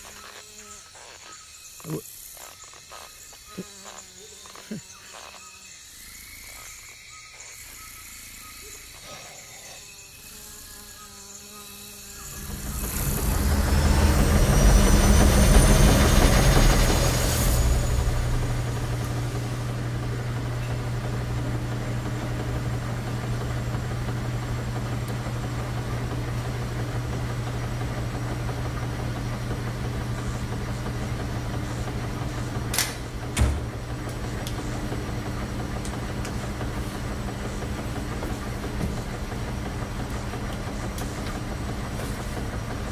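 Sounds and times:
washing machines humming: 0:11.8 - 0:42.9.

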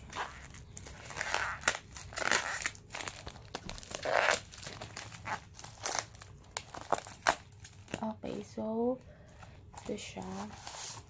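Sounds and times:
plastic mailer crinkling: 0:00.0 - 0:08.5.

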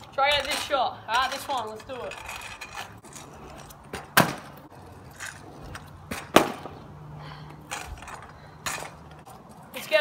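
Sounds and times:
scooter clacking on asphalt: 0:00.0 - 0:06.8
scooter wheels and deck knocking: 0:00.2 - 0:06.8.

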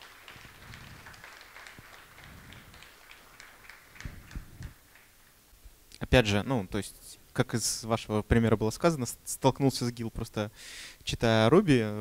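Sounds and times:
audience applause: 0:00.0 - 0:05.3.

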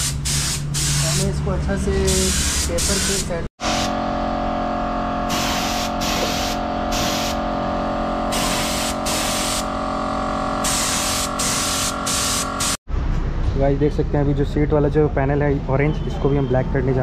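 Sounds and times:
spray gun hissing: 0:00.0 - 0:01.3, 0:02.1 - 0:04.0, 0:05.3 - 0:07.4, 0:08.3 - 0:09.7, 0:10.6 - 0:12.8
mechanical hum: 0:03.6 - 0:13.2.

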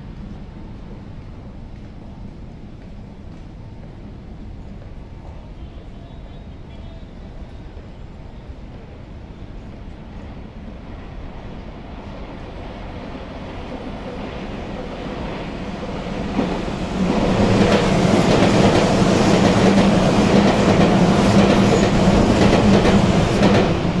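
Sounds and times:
train rushing through station: 0:00.0 - 0:24.0.

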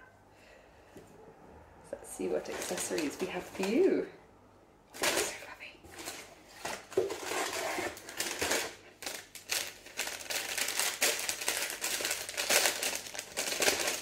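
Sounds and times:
paper crinkling and rustling: 0:02.4 - 0:03.9, 0:05.0 - 0:14.0.

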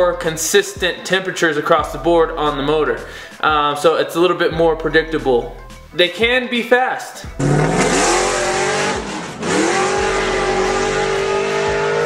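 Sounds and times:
car engine at full throttle: 0:07.4 - 0:12.0.

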